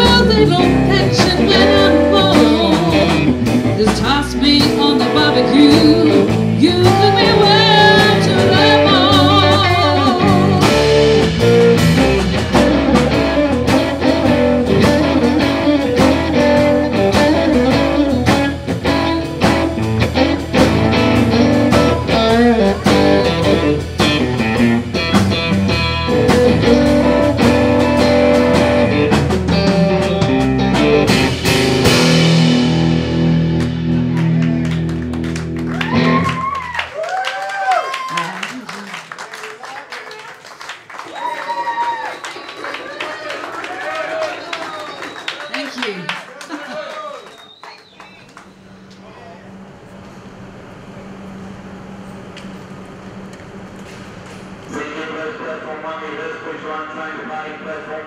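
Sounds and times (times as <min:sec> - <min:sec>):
woman singing with vibrato: 0:00.0 - 0:10.8
blues-rock band playing: 0:00.0 - 0:37.1.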